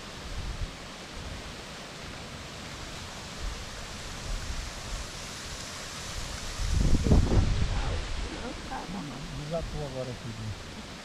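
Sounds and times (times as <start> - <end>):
wind on microphone: 6.0 - 11.0.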